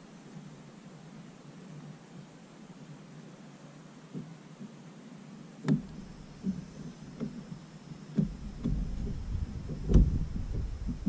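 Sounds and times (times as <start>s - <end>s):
knocks against plastic boat hull: 5.7s - 6.6s, 8.1s - 11.0s
low rumble: 8.3s - 11.0s.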